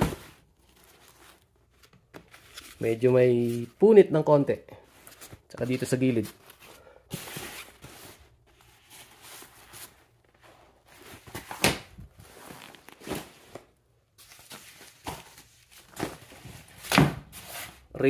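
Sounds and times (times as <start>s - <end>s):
fabric rustling: 4.8s - 14.9s.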